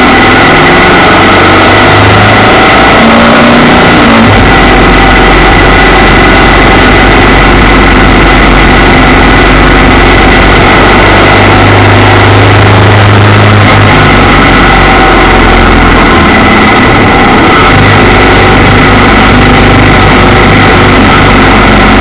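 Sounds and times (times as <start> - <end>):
wind and road noise: 0.0 - 22.0
motorcycle engine running: 3.5 - 22.0.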